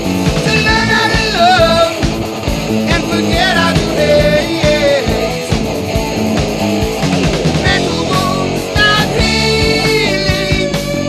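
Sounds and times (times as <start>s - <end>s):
rock music with guitar: 0.0s - 11.0s
person singing: 0.4s - 2.2s, 2.8s - 5.6s, 7.6s - 11.0s.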